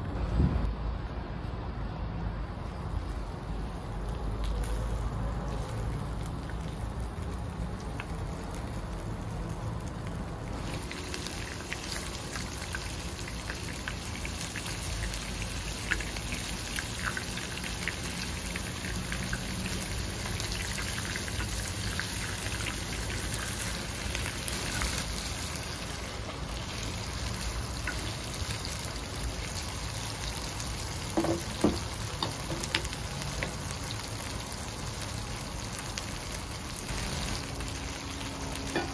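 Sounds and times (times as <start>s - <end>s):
meatballs sizzling in oil: 2.8s - 38.9s.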